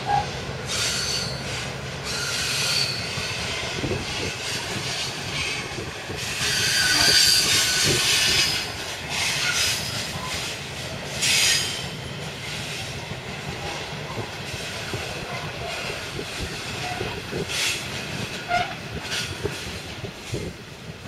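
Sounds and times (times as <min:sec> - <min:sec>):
high wheel squeals: 0:00.0 - 0:03.4, 0:04.4 - 0:10.5, 0:11.2 - 0:12.0
train rumble: 0:00.0 - 0:21.0
train wheels clicking over rail joints: 0:00.0 - 0:21.0.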